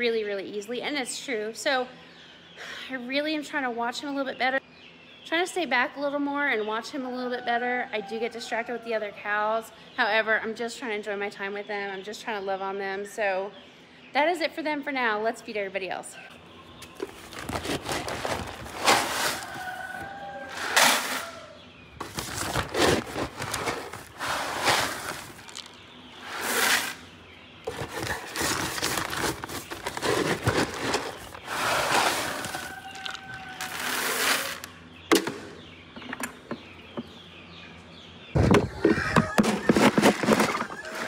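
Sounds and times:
paper sacks rustling: 0:16.9 - 0:21.2, 0:22.0 - 0:25.7, 0:27.7 - 0:34.7
pellets rattling into plastic bucket: 0:17.0 - 0:21.2, 0:22.0 - 0:25.8, 0:27.7 - 0:34.7, 0:39.4 - 0:41.0.

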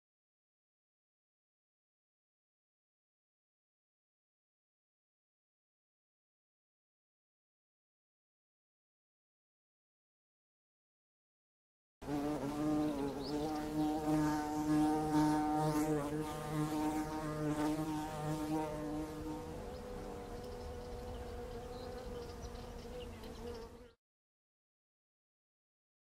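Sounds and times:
flying insects buzzing: 0:12.0 - 0:24.0.

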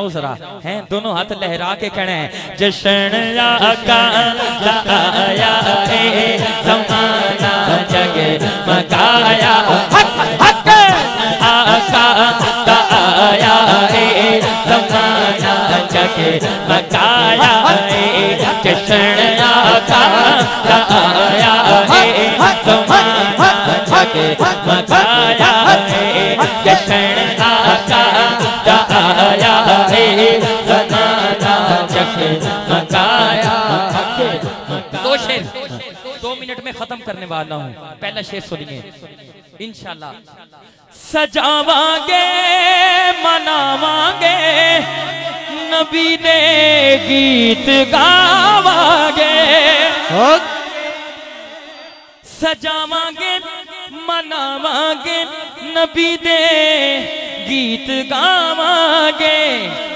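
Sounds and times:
lead reciter: 0:00.0 - 0:51.6, 0:52.3 - 0:59.9
men chanting over loudspeakers: 0:00.0 - 0:51.6, 0:52.4 - 0:59.9.

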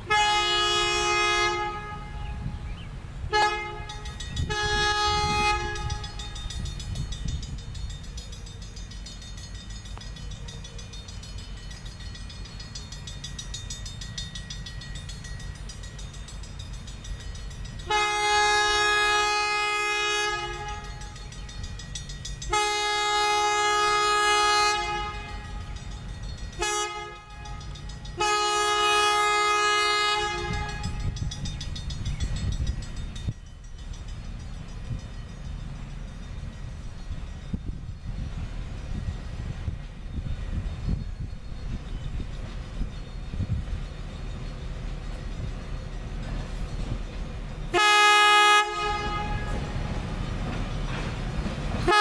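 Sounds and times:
train air horn blasts: 0:00.0 - 0:06.4, 0:17.8 - 0:21.2, 0:22.5 - 0:25.8, 0:26.6 - 0:31.2, 0:47.7 - 0:49.8, 0:51.8 - 0:52.0
diesel train rumble: 0:00.0 - 0:52.0.

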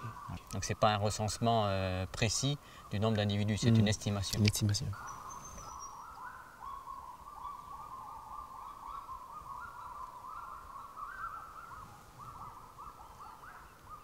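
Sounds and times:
birds hooting in duet: 0:05.0 - 0:14.0.

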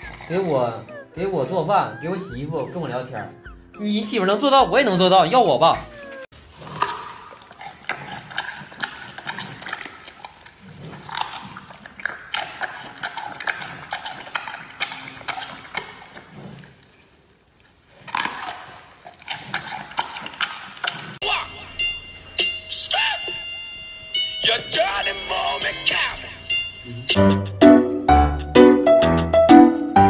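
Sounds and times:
panda crunching bamboo: 0:06.3 - 0:16.9, 0:17.9 - 0:21.2.

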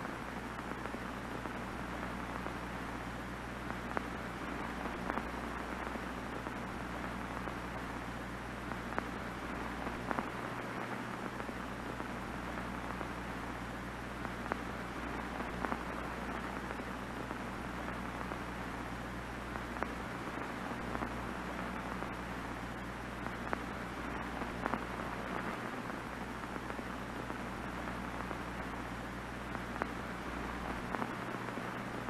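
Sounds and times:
television static hiss: 0:00.0 - 0:32.0
faint clicks: 0:03.6 - 0:08.0.

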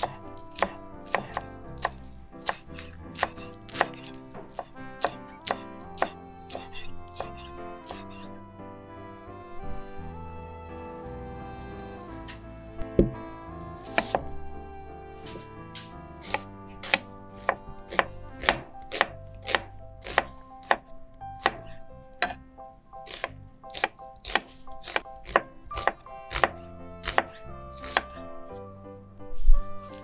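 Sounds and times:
knife chopping on wooden board: 0:00.0 - 0:08.4, 0:13.0 - 0:13.2, 0:13.8 - 0:14.3, 0:16.2 - 0:22.4, 0:23.0 - 0:28.2.

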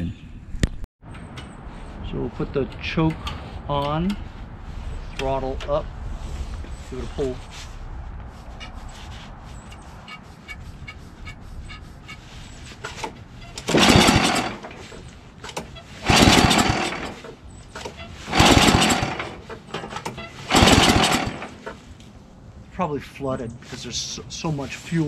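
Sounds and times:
recoil pull-starter cranking engine: 0:12.8 - 0:21.8.

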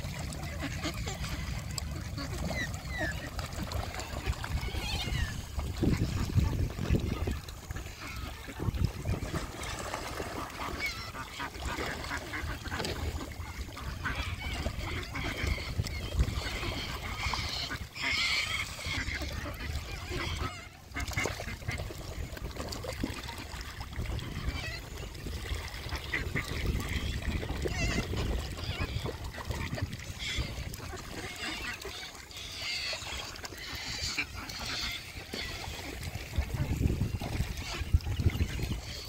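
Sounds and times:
geese honking: 0:10.4 - 0:20.7, 0:26.0 - 0:36.0.

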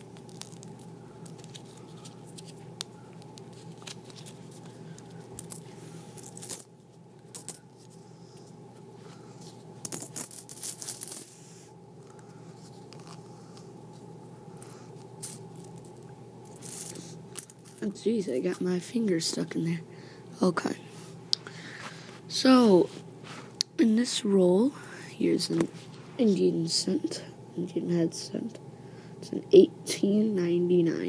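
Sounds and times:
coins clinking: 0:05.4 - 0:06.8, 0:07.4 - 0:07.6, 0:09.8 - 0:11.4, 0:14.6 - 0:17.9, 0:25.6 - 0:26.1.

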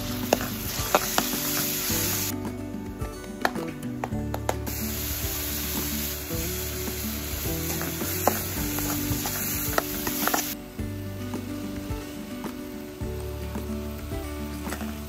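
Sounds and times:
vegetables sizzling in a pan: 0:00.0 - 0:02.3, 0:04.6 - 0:10.6, 0:11.2 - 0:15.0.

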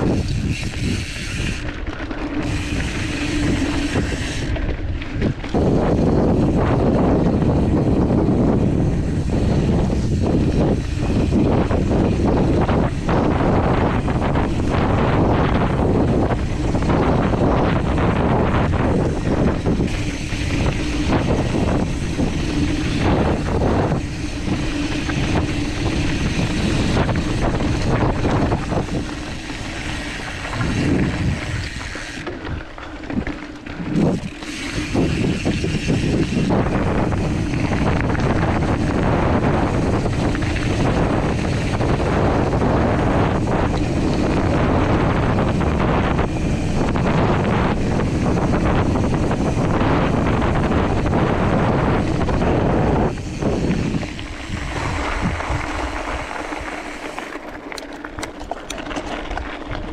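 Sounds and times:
bike tyres on dirt: 0:00.0 - 0:59.9
wind buffeting microphone: 0:00.0 - 0:59.9.

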